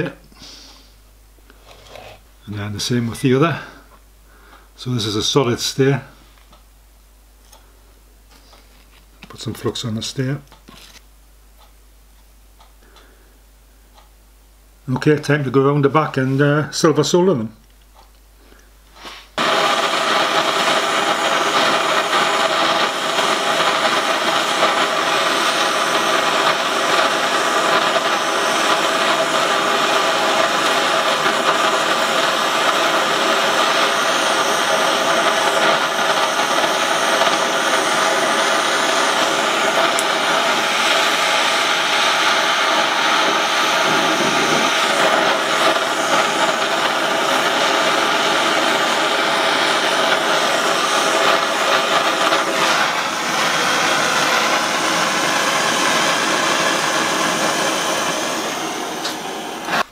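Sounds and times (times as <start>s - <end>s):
gas torch flame rushing: 18.9s - 59.9s.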